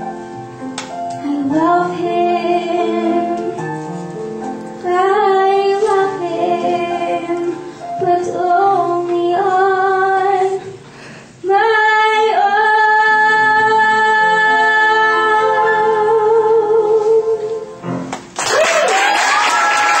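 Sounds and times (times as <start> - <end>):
girl singing into microphone: 1.1 - 3.8, 4.8 - 10.8, 11.4 - 17.8
applause: 18.4 - 20.0
person cheering: 18.4 - 20.0.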